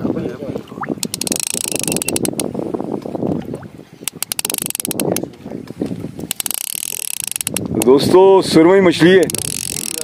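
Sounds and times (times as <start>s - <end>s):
sea water washing: 0.0s - 10.0s
wind: 0.0s - 10.0s
fishing reel ratcheting: 1.0s - 2.5s, 4.0s - 5.2s, 6.2s - 8.1s, 9.0s - 10.0s.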